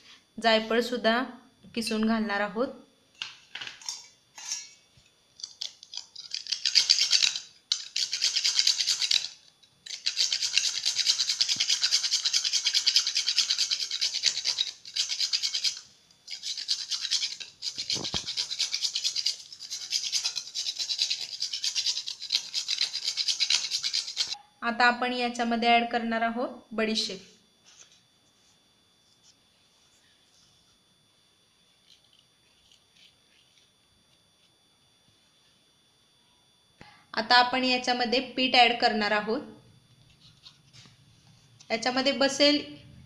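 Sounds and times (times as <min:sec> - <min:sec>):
nutmeg rasping on metal grater: 0:05.6 - 0:24.4.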